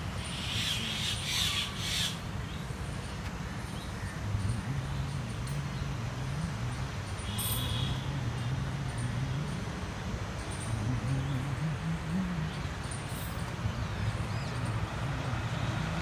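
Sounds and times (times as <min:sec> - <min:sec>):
vehicle engine humming: 0:02.1 - 0:16.0.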